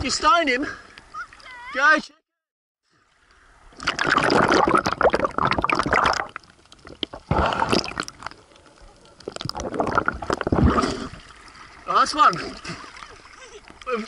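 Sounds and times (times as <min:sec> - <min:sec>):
water splashing and gurgling: 0:03.1 - 0:14.0
churning bubbles underwater: 0:03.7 - 0:11.9.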